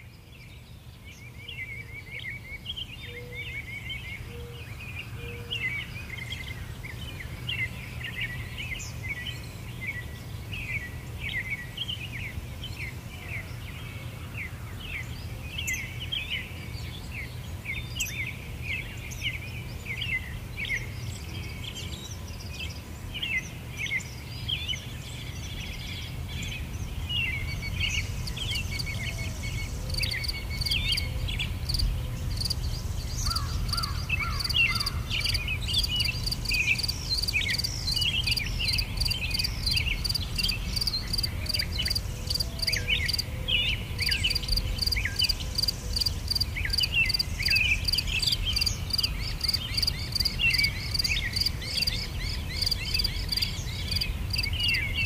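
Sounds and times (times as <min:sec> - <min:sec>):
small birds chirping: 0:00.0 - 0:55.0
insect pulsing high chirp: 0:27.5 - 0:31.1, 0:33.2 - 0:43.2, 0:44.0 - 0:51.9, 0:52.6 - 0:54.5.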